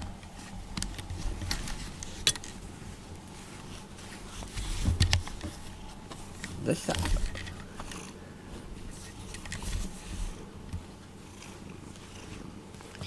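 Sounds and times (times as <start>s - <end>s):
cat purring: 6.6s - 13.0s.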